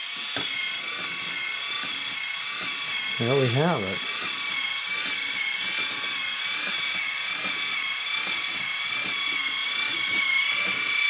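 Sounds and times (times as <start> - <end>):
toy robot motor whining: 0.0 - 11.0.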